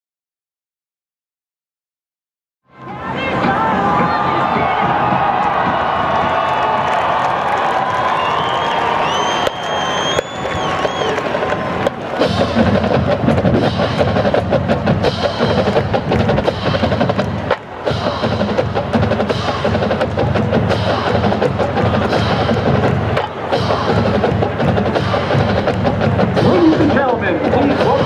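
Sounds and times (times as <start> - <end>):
bass drums: 3.2 - 7.3, 10.0 - 28.0
snare drums: 4.0 - 28.0.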